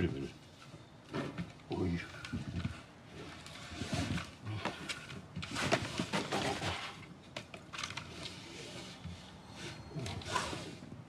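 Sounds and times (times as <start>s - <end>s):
paper and canvas rustling: 2.2s - 11.0s.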